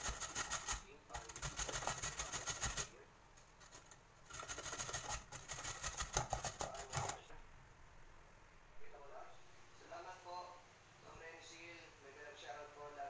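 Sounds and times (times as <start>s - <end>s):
carrot grated on metal grater: 0.0s - 2.9s, 3.6s - 7.2s.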